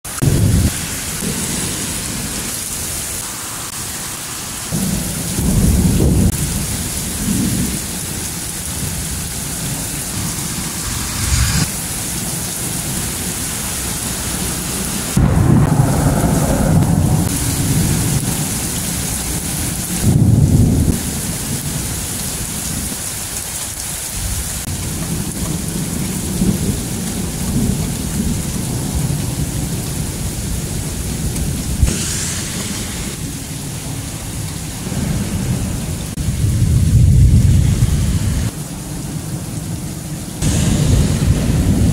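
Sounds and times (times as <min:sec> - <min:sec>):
thunder rolling: 0:00.1 - 0:02.8, 0:04.7 - 0:21.7, 0:24.7 - 0:38.5, 0:40.4 - 0:41.9
rain hiss: 0:00.1 - 0:41.9
thunder crack: 0:00.2 - 0:02.7, 0:08.6 - 0:14.0, 0:15.0 - 0:19.0, 0:31.4 - 0:34.0, 0:40.4 - 0:41.9.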